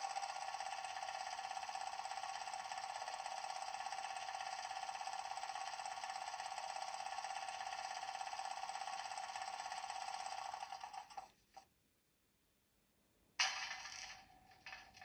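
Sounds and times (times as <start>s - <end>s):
fast-pulsing rattling buzz: 0.0s - 11.3s.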